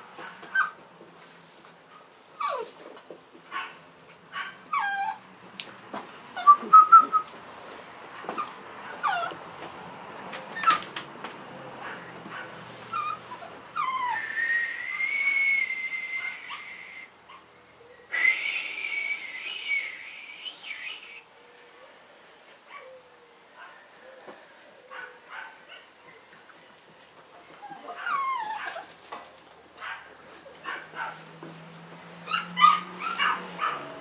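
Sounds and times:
puppies whining and whimpering: 0:00.0 - 0:03.0, 0:04.0 - 0:05.2, 0:06.1 - 0:09.4, 0:10.2 - 0:10.9, 0:12.8 - 0:14.4, 0:26.9 - 0:28.9, 0:32.3 - 0:33.4.

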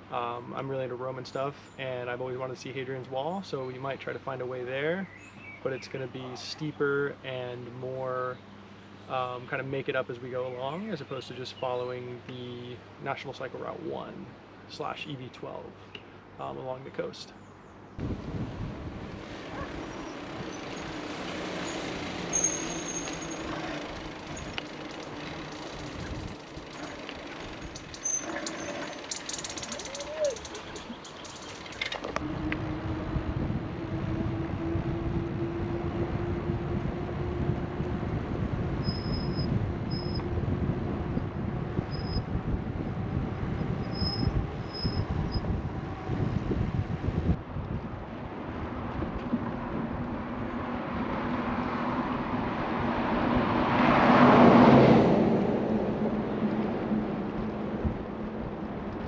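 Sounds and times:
rushing wind: 0:17.7 - 0:59.0
passing road traffic: 0:18.0 - 0:59.0.

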